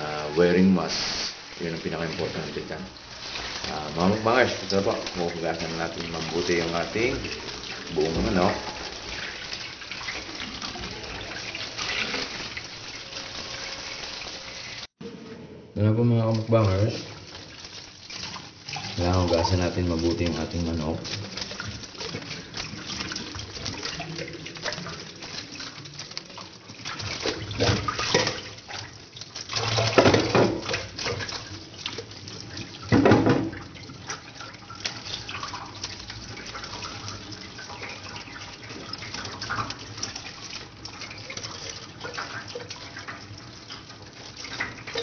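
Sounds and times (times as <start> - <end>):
water splashing on chicken: 0.0 - 15.0, 16.2 - 45.0
tap running into steel sink: 32.9 - 33.6.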